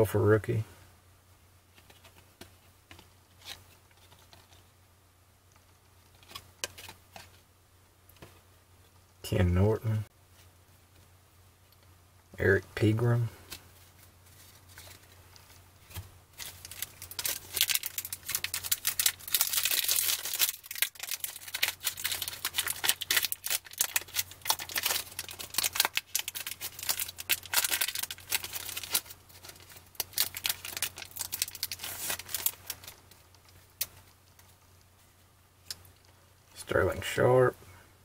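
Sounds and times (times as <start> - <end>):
foil wrapper tearing and crinkling: 16.4 - 34.0.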